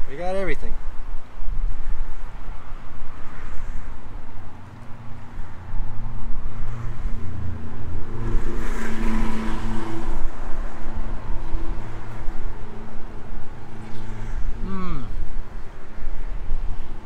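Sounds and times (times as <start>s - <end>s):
wind on microphone: 0.8s - 17.0s.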